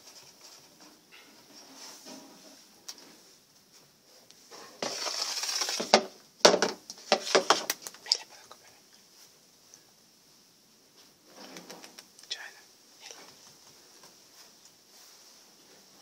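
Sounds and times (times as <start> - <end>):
short rustle: 4.5 - 6.0, 13.1 - 16.0.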